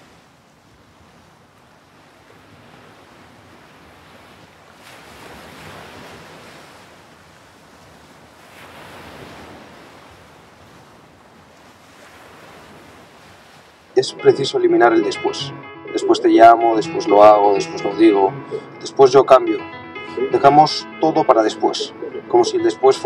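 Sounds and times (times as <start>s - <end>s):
waves breaking: 0.0s - 23.0s
ocean surf rushing: 13.9s - 23.0s.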